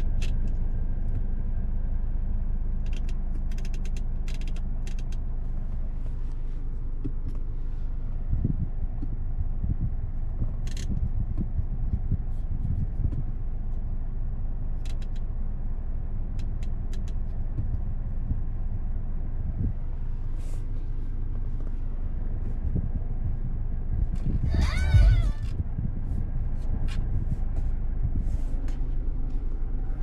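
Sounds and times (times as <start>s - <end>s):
engine and road noise rumble: 0.0s - 30.0s
light ticks: 14.8s - 15.3s, 16.3s - 17.9s.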